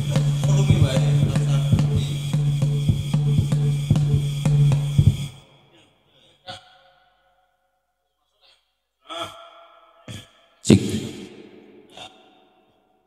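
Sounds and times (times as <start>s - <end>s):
drumming with a steady beat: 0.0s - 5.4s.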